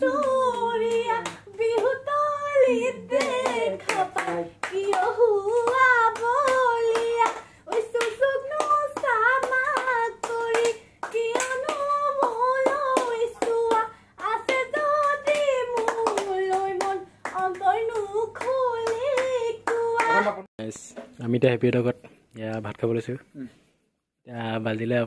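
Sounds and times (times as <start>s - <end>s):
hand claps: 0.0s - 2.0s, 3.1s - 20.3s.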